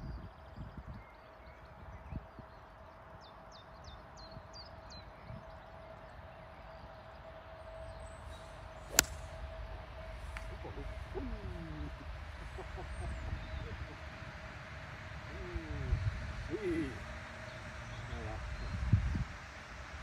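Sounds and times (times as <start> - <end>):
faint swish of golf swing: 8.9 - 9.3
golf club striking ball: 8.9 - 9.4
bird chirping: 10.0 - 14.2.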